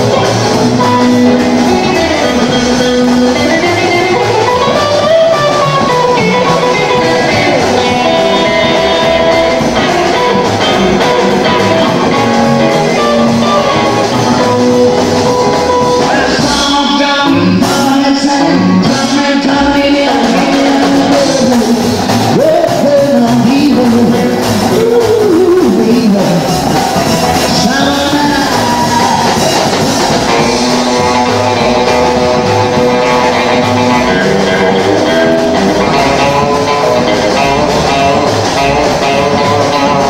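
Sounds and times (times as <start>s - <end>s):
electric guitar: 0.0s - 40.0s
live rock band playing: 0.0s - 40.0s.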